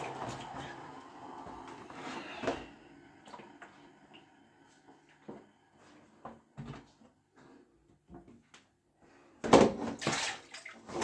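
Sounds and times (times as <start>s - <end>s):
plastic basin knocks and clattering: 9.4s - 10.2s.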